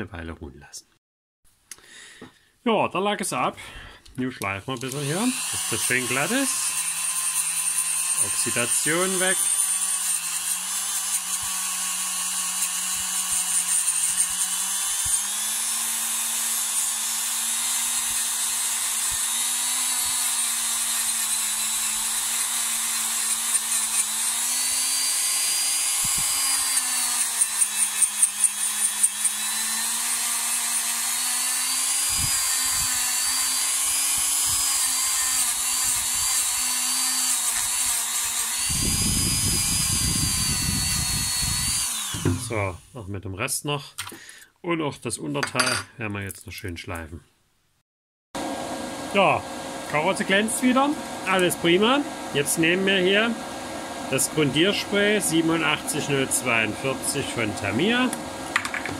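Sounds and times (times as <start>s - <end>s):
rotary tool grinding metal: 4.7s - 42.8s.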